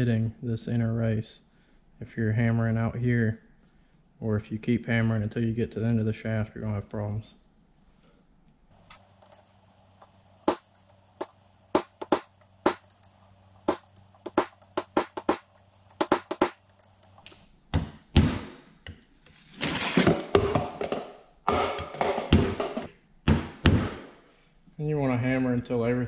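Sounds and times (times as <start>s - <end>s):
hammer striking metal bearing: 10.5s - 13.1s, 13.7s - 16.7s.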